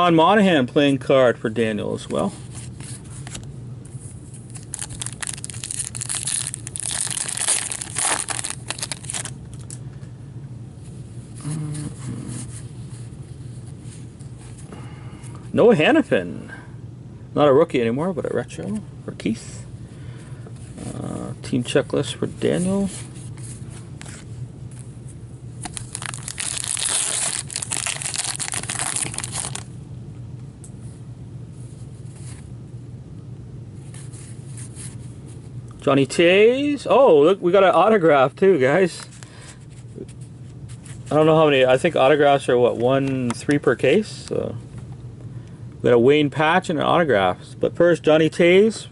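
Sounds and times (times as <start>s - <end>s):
plastic wrapper crinkling: 4.5s - 9.8s, 25.6s - 29.7s.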